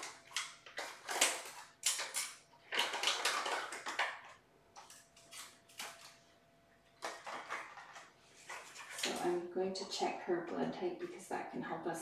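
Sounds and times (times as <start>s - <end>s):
items clattering: 0.0s - 6.3s, 6.9s - 9.5s
rustling and crinkling: 0.0s - 9.5s.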